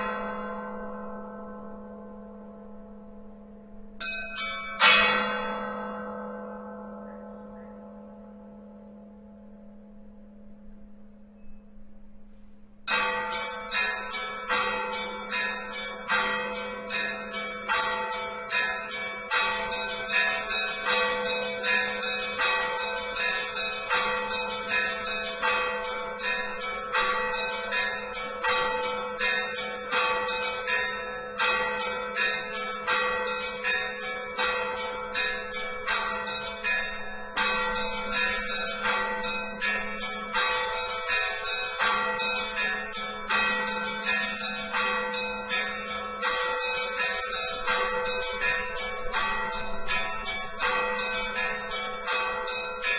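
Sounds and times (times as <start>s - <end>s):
large bells humming: 0.0s - 52.9s
high bells striking: 12.9s - 52.9s.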